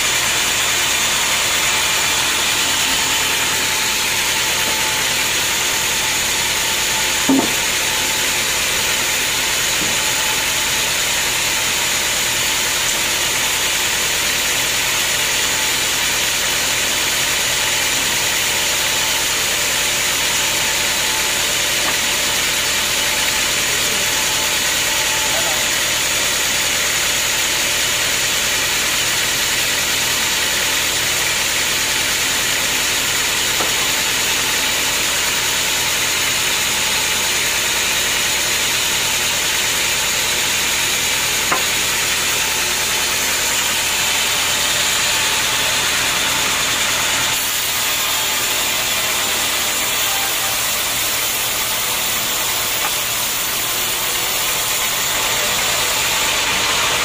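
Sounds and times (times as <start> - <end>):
band saw cutting log: 0.0 - 57.0.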